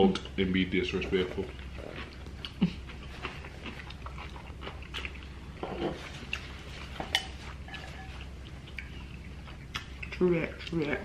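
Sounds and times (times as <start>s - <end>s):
people chewing: 0.9s - 11.0s.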